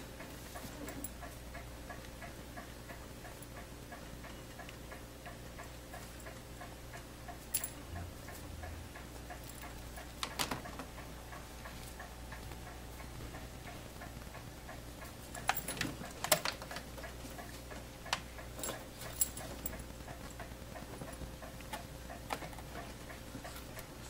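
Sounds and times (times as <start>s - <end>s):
mechanical ticking: 0.0s - 24.0s
low hum: 7.5s - 10.2s.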